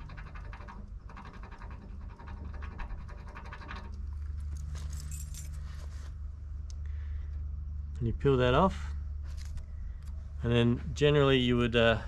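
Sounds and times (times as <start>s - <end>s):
low steady hum: 0.0s - 12.0s
keys jingling: 4.5s - 5.8s.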